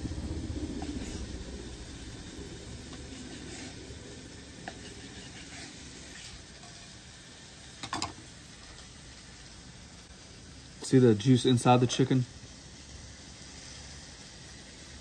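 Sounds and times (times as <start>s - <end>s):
chicken sizzling on griddle: 0.0s - 15.0s.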